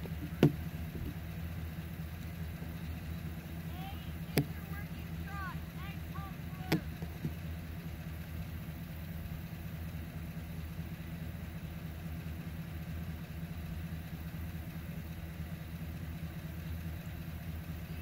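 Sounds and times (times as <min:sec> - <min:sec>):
low engine hum: 0:00.0 - 0:18.0.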